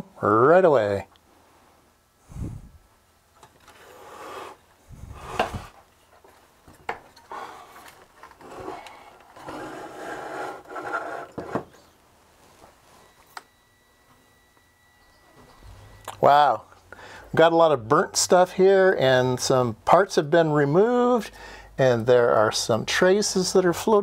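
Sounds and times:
metal chassis scraping on wood: 0:08.3 - 0:11.6.

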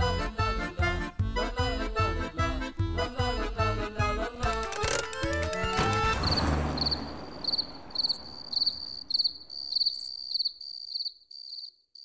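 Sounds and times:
crickets chirping: 0:06.3 - 0:12.0.

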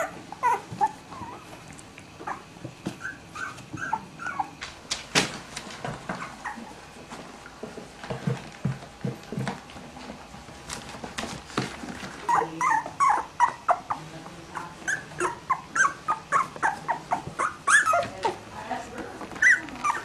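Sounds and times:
puppies whimpering and squeaking: 0:00.0 - 0:04.8, 0:05.8 - 0:07.2, 0:11.3 - 0:18.6, 0:19.2 - 0:20.0.

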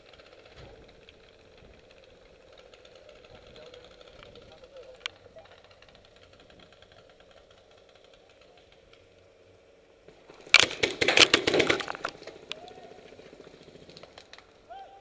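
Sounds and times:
paintball gun cracks and smacks: 0:10.5 - 0:12.6.

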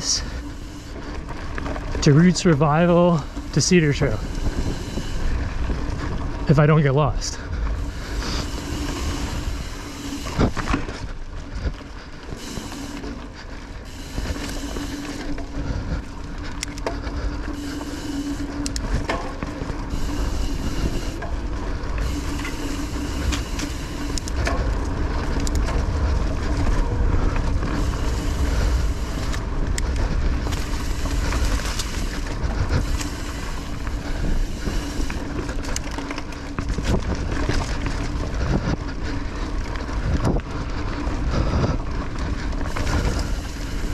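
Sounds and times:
bike tyres rolling over dirt: 0:00.0 - 0:43.9
wind on microphone: 0:03.3 - 0:06.5
bike knocks and rattles: 0:14.3 - 0:43.9.

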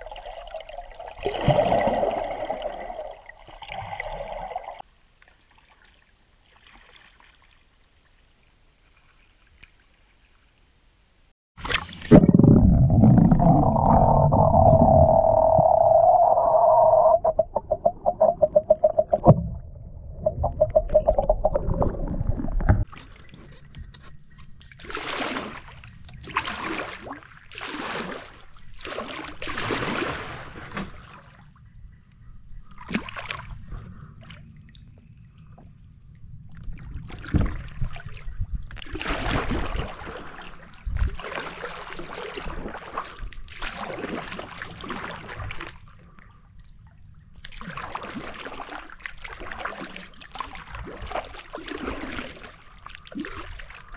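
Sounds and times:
kayak paddle splashing: 0:24.7 - 0:31.3, 0:37.0 - 0:45.9, 0:47.4 - 0:53.9.

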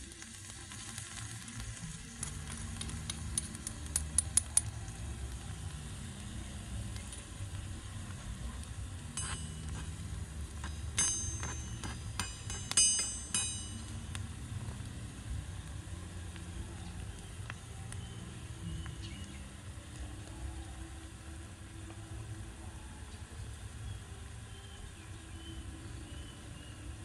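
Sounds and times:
food sizzling in oil: 0:00.0 - 0:17.4
sharp ringing clinks: 0:09.2 - 0:09.8, 0:10.6 - 0:13.9
fork tapping metal spoon: 0:09.2 - 0:10.0, 0:10.6 - 0:13.9.

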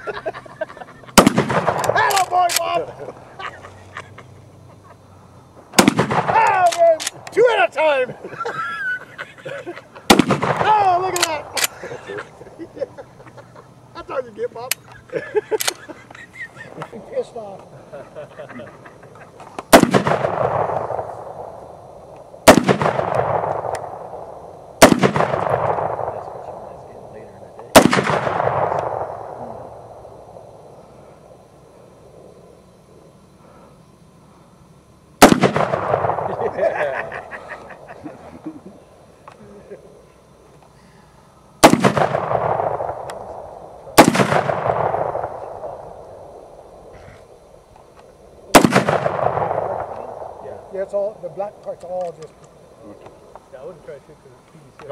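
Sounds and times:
rifle shots with echo: 0:01.2 - 0:02.8, 0:05.8 - 0:08.0, 0:10.1 - 0:12.3, 0:19.7 - 0:31.4, 0:35.2 - 0:37.0, 0:41.6 - 0:46.9, 0:48.4 - 0:51.1.

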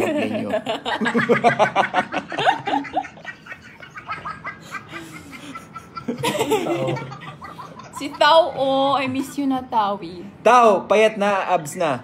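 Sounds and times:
man laughing: 0:00.0 - 0:08.1.

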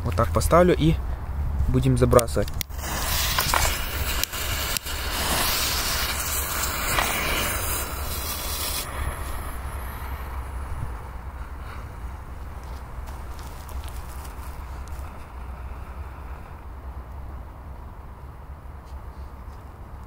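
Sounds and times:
smoke bomb hissing: 0:02.6 - 0:12.3, 0:13.2 - 0:16.8
low rumble: 0:03.7 - 0:17.7.

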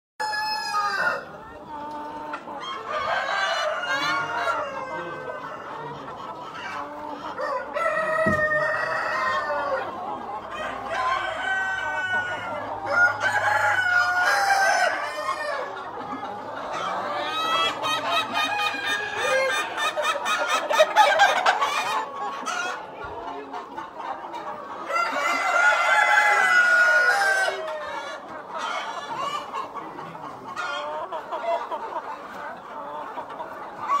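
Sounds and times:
chickens clucking and calling: 0:00.2 - 0:34.0.

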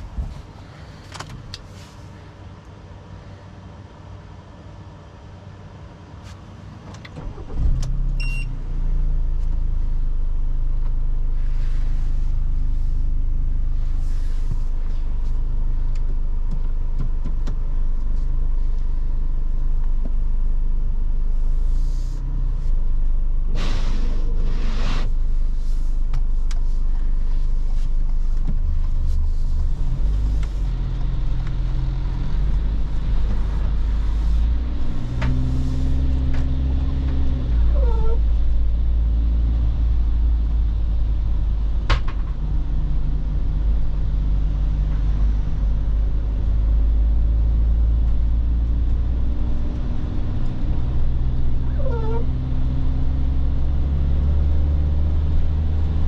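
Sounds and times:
road rumble: 0:00.0 - 0:56.0
diesel engine accelerating: 0:07.2 - 0:56.0
brief squeaks: 0:51.7 - 0:52.3.

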